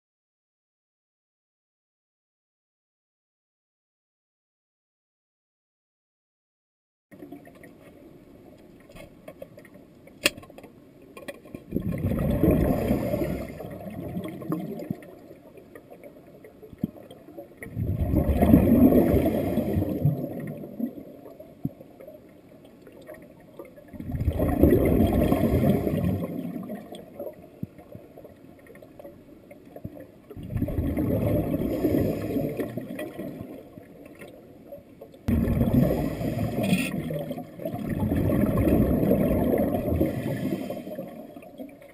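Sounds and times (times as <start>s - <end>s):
diver exhaling bubbles underwater: 11.7s - 15.1s, 17.6s - 21.1s, 23.9s - 26.9s, 30.4s - 33.6s, 35.3s - 41.6s.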